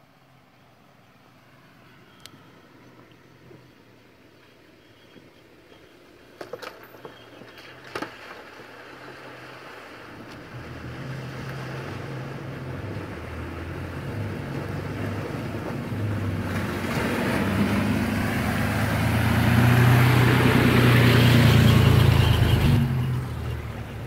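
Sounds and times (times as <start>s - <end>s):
vehicle engine: 0.0s - 24.0s
water splashing off wheels: 2.8s - 24.0s.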